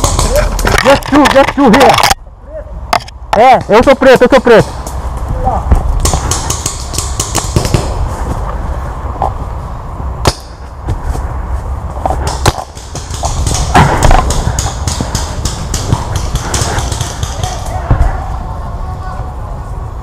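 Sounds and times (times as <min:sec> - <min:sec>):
paintball markers firing: 0:00.0 - 0:02.2, 0:06.0 - 0:08.0, 0:12.2 - 0:17.7
wind rumble: 0:04.6 - 0:20.0.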